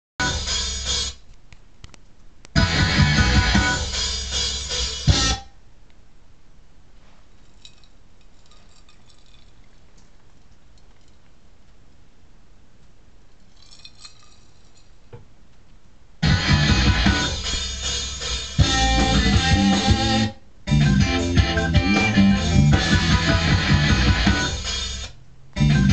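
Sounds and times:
band music with electric guitar: 0:02.6 - 0:05.5, 0:16.2 - 0:25.9.

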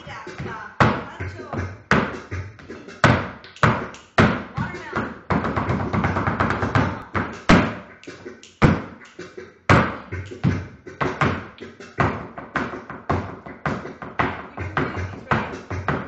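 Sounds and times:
flamenco footwork stamping: 0:00.0 - 0:07.8, 0:09.7 - 0:10.0, 0:11.0 - 0:16.0.

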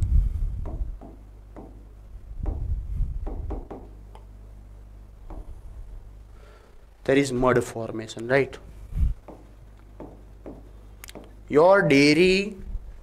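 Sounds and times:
marker writing on whiteboard: 0:09.2 - 0:11.4.

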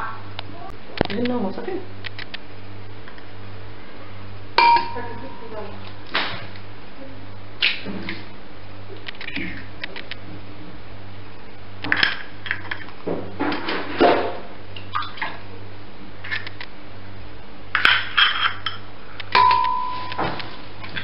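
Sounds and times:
glass ringing: 0:04.6 - 0:05.5, 0:19.4 - 0:20.2.

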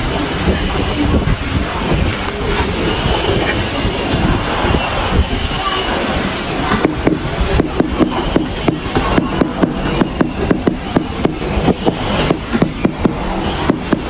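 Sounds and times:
steady background noise: 0:00.0 - 0:14.0.

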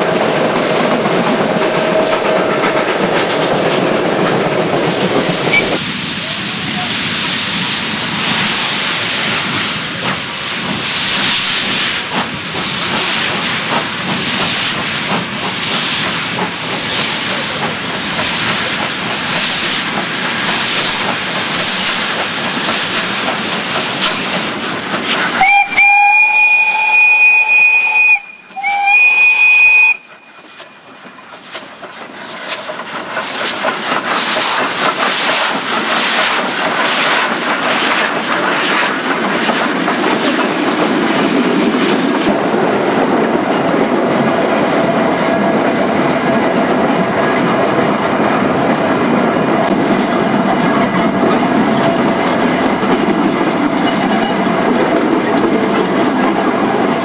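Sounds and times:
steam locomotive exhaust beats: 0:00.0 - 0:57.0
train coaches rolling past: 0:00.0 - 0:57.0
two-note steam whistle: 0:05.5 - 0:05.8, 0:25.4 - 0:30.9.

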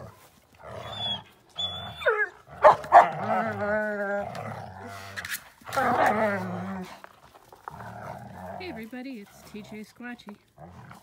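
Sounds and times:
dogs growling: 0:00.0 - 0:11.0
dog yelping: 0:00.8 - 0:03.2
dogs barking: 0:02.0 - 0:03.2.

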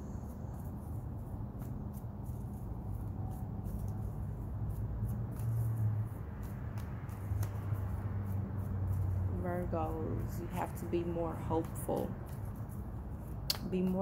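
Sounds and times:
cards being shuffled by hand: 0:00.6 - 0:09.3, 0:11.6 - 0:14.0.

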